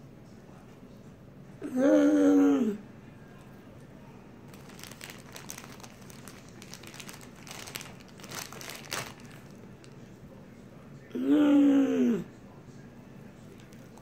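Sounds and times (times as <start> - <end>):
plastic bag crinkling: 4.5 - 10.0.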